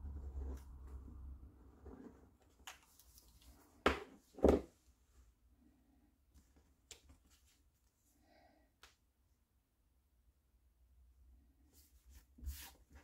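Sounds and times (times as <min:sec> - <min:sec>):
paper and card handling: 0:02.4 - 0:03.8.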